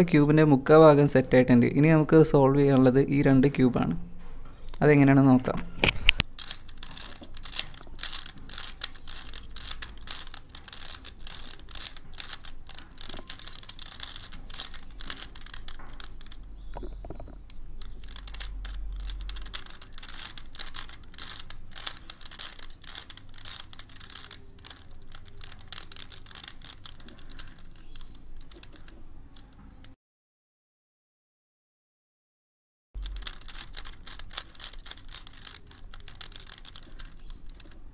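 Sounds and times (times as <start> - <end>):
puzzle cube layers clicking: 6.2 - 29.9, 33.0 - 37.9.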